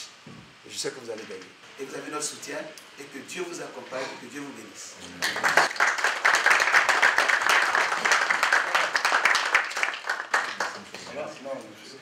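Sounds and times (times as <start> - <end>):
crowd applauding: 5.2 - 11.3.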